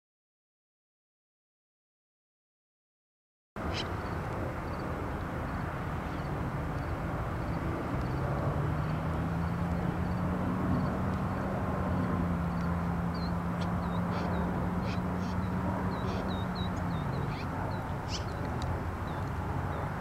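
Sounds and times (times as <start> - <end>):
distant engine hum: 3.6 - 20.0.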